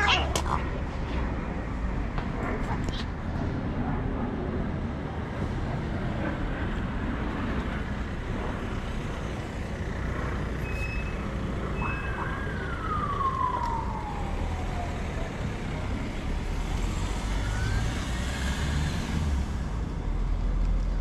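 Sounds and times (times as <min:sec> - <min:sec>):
street traffic noise: 0:00.0 - 0:21.0
distant siren wailing: 0:07.8 - 0:18.8.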